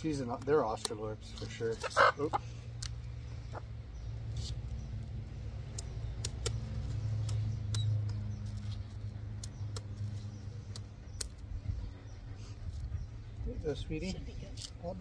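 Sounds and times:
scissors snipping feathers: 0:00.2 - 0:01.9, 0:02.7 - 0:03.1, 0:04.3 - 0:11.6.

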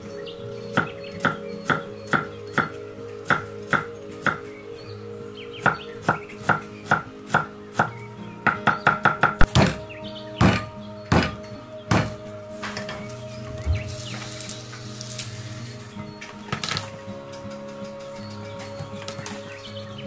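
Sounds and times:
cleaver chopping on wooden board: 0:08.7 - 0:09.8, 0:10.4 - 0:12.2.

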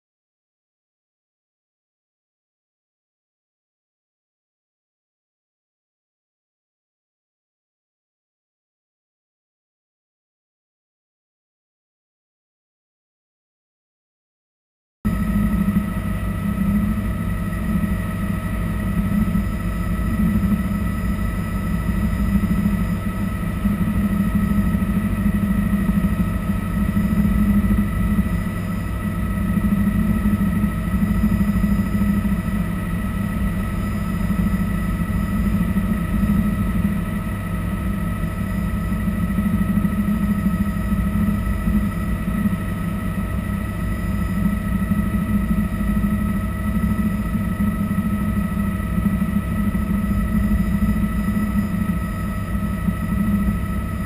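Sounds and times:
helicopter rotor and engine drone: 0:15.1 - 0:54.0
high whine: 0:15.1 - 0:54.0.

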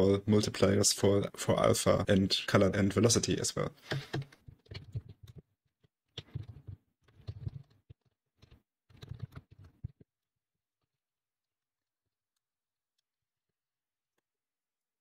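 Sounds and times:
typing on a keyboard: 0:06.2 - 0:07.8, 0:08.4 - 0:10.0.

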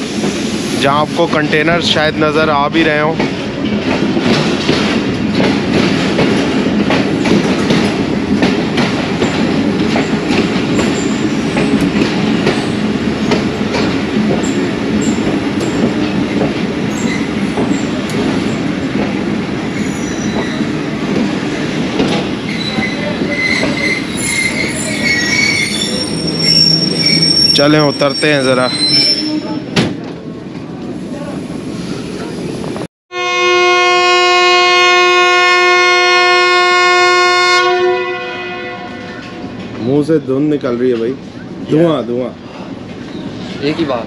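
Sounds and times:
train rolling rumble: 0:00.0 - 0:32.9, 0:34.0 - 0:44.0
high-pitched wheel squeals: 0:19.8 - 0:20.6, 0:22.5 - 0:29.7.

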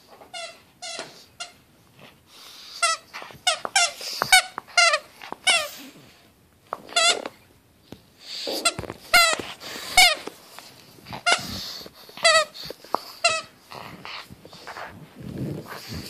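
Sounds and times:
squeaky dog toy squeaks: 0:00.3 - 0:01.6, 0:02.8 - 0:05.8, 0:06.8 - 0:07.3, 0:08.6 - 0:10.2, 0:12.2 - 0:12.6, 0:13.2 - 0:13.5.

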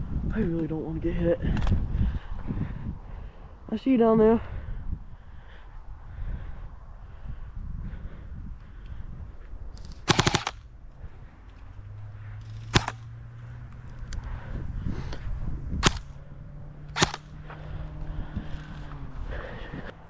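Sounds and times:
airsoft rifle shots: 0:09.9 - 0:10.7, 0:12.5 - 0:13.1, 0:15.8 - 0:16.1, 0:16.9 - 0:17.4.

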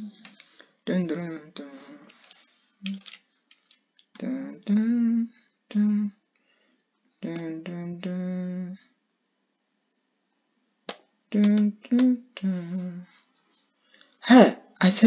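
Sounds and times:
person humming: 0:00.0 - 0:02.1, 0:04.2 - 0:06.2, 0:07.2 - 0:08.9, 0:11.3 - 0:13.1.

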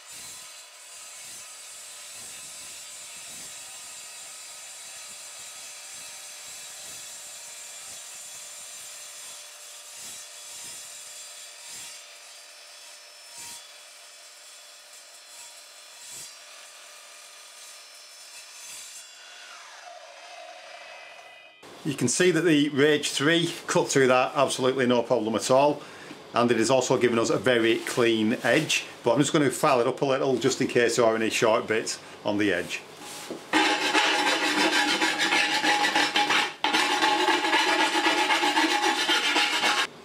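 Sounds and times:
saw blade cutting aluminium plate: 0:00.0 - 0:12.3, 0:14.8 - 0:21.3, 0:33.0 - 0:39.9
saw blade whine: 0:19.2 - 0:21.7, 0:33.0 - 0:40.0.

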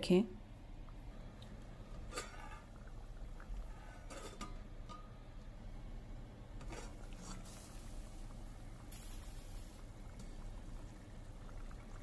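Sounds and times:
low steady hum: 0:00.0 - 0:12.0
pot lid clinking against pot: 0:03.9 - 0:05.1.

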